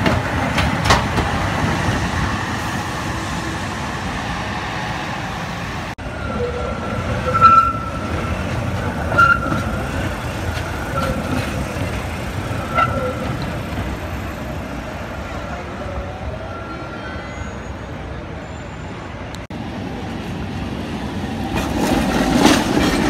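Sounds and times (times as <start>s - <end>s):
tram wheels rumbling on track: 0.0s - 23.0s
high wheel squeals: 6.0s - 14.7s, 16.3s - 19.2s.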